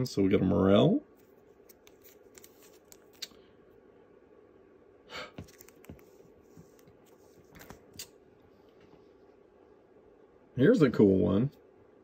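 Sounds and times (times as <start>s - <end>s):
low room hum: 0.0s - 12.0s
trading cards clicking and rustling: 1.6s - 3.4s, 5.4s - 8.2s.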